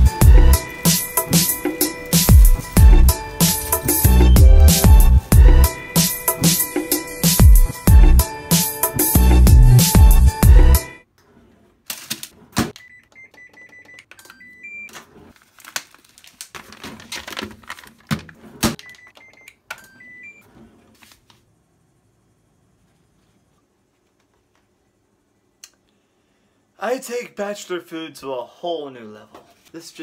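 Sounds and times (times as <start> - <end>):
plastic tray crinkling and clicking: 14.1 - 19.8.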